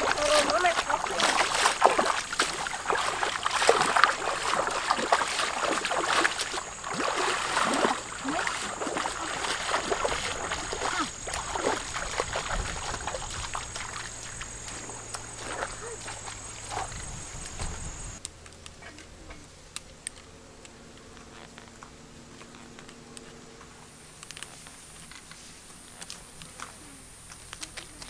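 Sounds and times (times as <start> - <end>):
feet wading through stream: 0.0 - 18.2.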